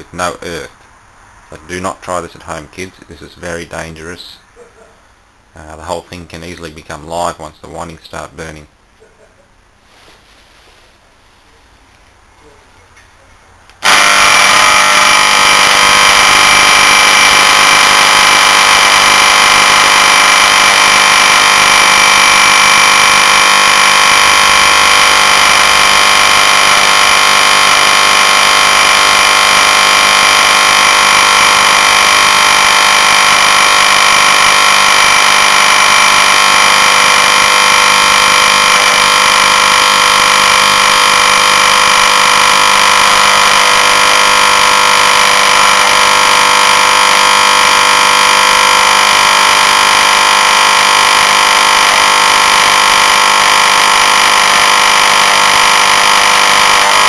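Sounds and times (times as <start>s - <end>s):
compressor motor humming: 13.5s - 57.0s.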